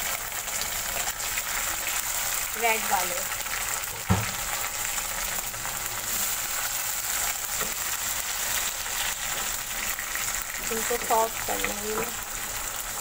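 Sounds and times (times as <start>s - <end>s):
food sizzling in hot oil: 0.0s - 13.0s
sharp knock: 4.0s - 4.4s.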